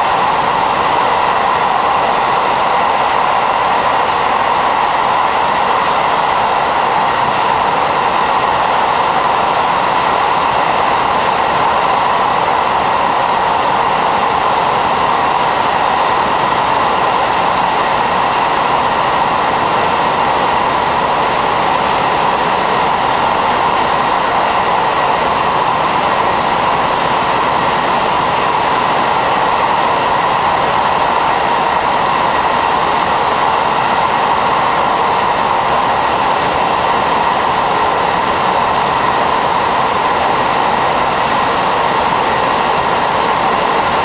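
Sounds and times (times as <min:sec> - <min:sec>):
train engine and wheels roaring: 0:00.0 - 0:44.0.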